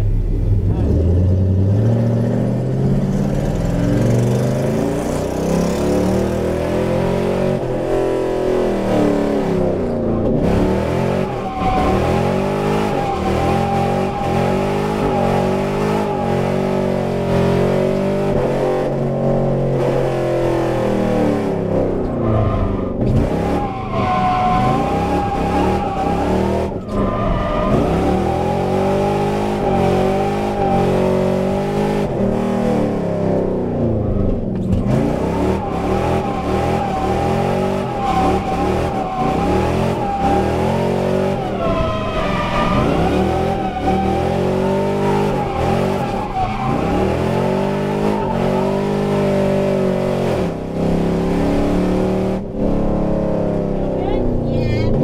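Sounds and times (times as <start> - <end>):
car engine revving: 0.0 - 55.0
tyres squealing: 11.1 - 16.6, 23.4 - 30.9, 35.2 - 49.2.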